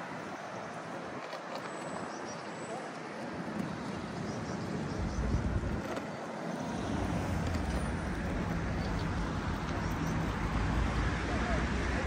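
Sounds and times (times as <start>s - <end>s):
road traffic passing: 0.0s - 12.0s
wind buffeting microphone: 3.4s - 6.0s.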